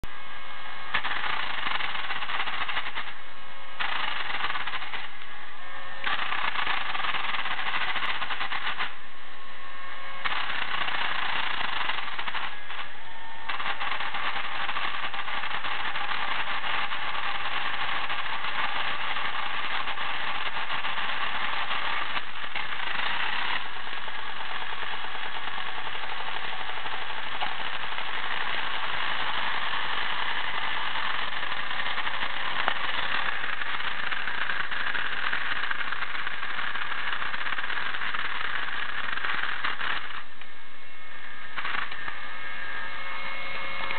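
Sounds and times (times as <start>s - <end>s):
toy car motor rattling: 0.9s - 3.2s, 3.8s - 5.2s, 6.0s - 9.0s, 10.2s - 40.6s, 41.2s - 43.9s.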